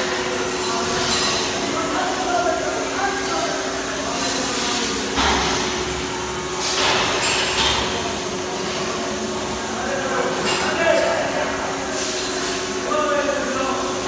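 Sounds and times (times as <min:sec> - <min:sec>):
mechanical hum with held tones: 0:00.0 - 0:14.0.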